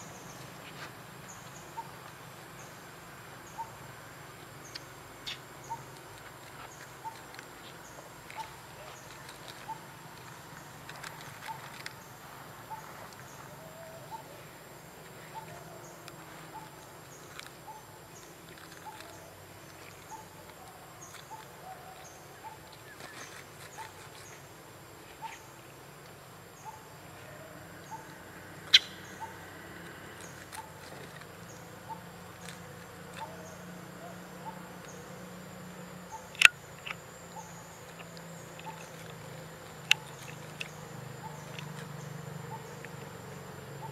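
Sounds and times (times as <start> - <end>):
insect hum: 0.0 - 43.9
sharp clicks: 36.3 - 37.1.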